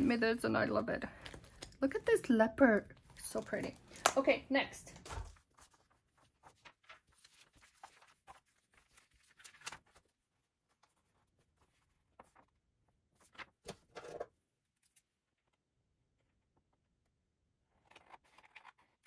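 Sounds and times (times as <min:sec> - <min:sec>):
paper and stickers rustling: 0:01.0 - 0:14.2, 0:17.7 - 0:19.0.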